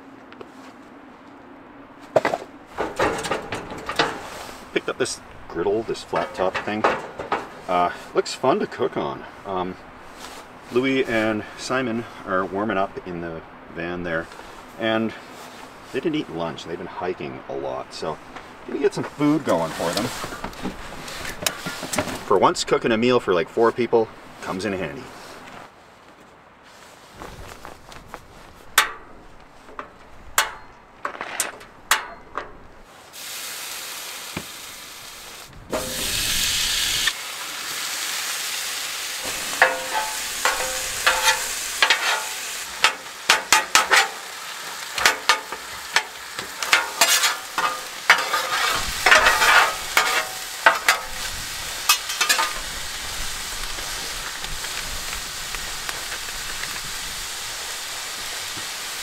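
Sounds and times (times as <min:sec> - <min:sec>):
metal spatula scraping griddle: 0:02.7 - 0:04.8, 0:06.0 - 0:08.0, 0:35.8 - 0:36.5, 0:39.2 - 0:52.8
gas burner hissing: 0:31.5 - 0:59.0
meat sizzling on a griddle: 0:33.1 - 0:59.0.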